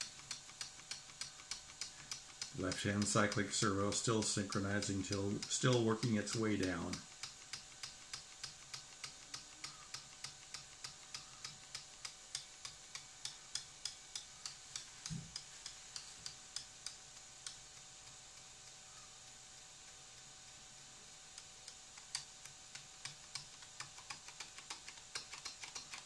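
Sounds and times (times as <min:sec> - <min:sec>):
servo ticking: 0:00.0 - 0:26.0.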